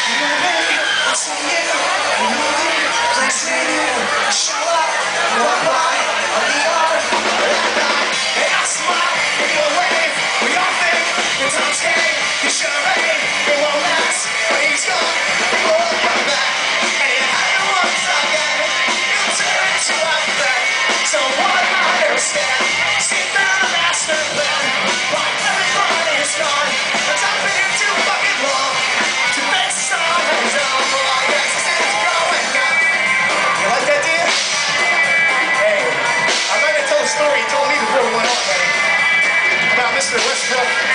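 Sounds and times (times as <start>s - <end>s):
person singing: 0.0s - 34.6s
drums beating: 0.0s - 40.9s
live rock band playing: 0.0s - 40.9s.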